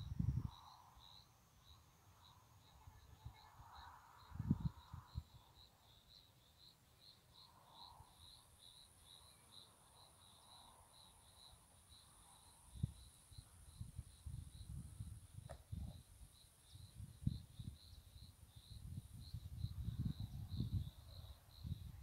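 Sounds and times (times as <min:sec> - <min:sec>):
crickets chirping: 0:00.0 - 0:22.0
wind thumps on microphone: 0:04.3 - 0:05.2, 0:13.8 - 0:16.0, 0:18.7 - 0:21.0.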